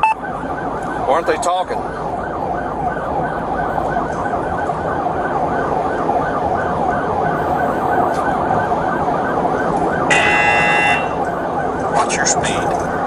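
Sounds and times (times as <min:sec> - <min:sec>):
police siren yelping: 0:00.0 - 0:13.0
road and engine rumble: 0:00.0 - 0:13.0.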